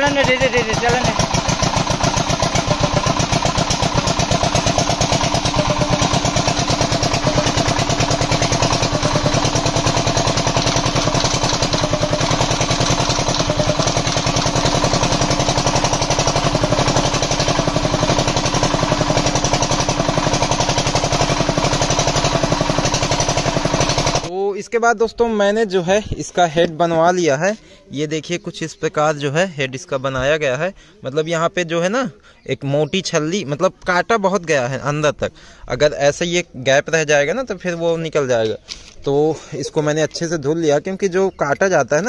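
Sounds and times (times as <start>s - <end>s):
diesel generator engine running: 0.0s - 24.3s.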